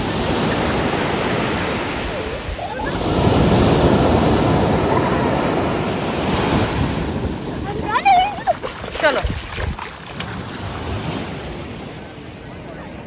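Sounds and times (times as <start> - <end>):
sea waves breaking on sand: 0.0 - 12.4.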